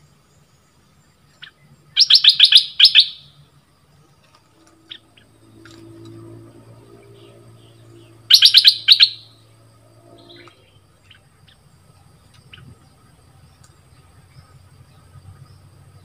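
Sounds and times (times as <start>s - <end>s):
bird singing clear notes: 1.3s - 3.4s, 7.1s - 9.4s, 10.0s - 11.6s.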